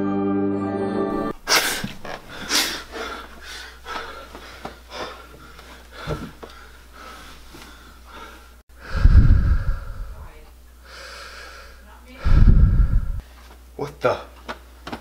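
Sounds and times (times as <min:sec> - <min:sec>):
man gasping and panting: 0:01.5 - 0:10.0.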